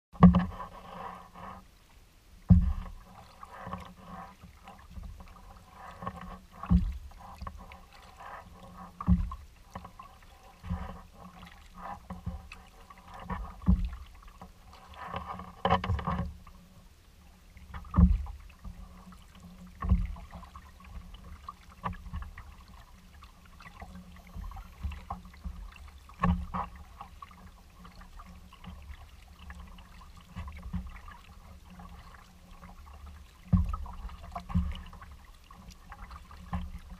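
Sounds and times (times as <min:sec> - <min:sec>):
paddle stroke thumps: 0:00.2 - 0:01.5, 0:02.5 - 0:03.9, 0:04.6 - 0:14.4, 0:19.8 - 0:36.9
faint water noise: 0:00.2 - 0:36.9.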